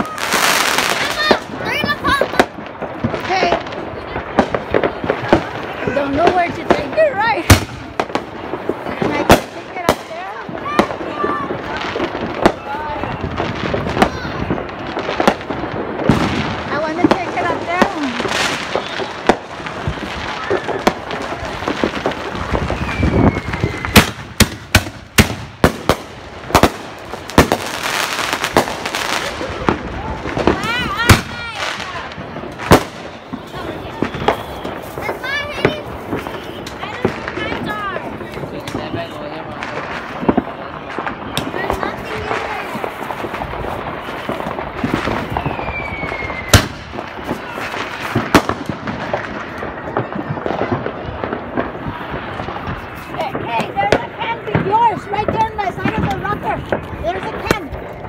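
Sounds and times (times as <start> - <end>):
firework bangs: 0.0 - 58.0
firework whistle: 18.5 - 21.1, 22.4 - 24.4, 32.8 - 36.9, 43.8 - 48.4.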